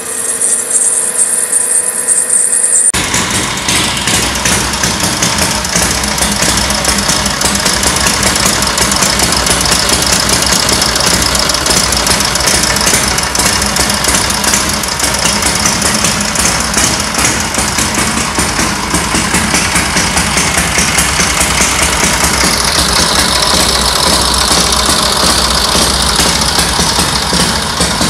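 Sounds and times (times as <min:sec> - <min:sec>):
motorcycle engine fast idle: 0:02.9 - 0:28.0.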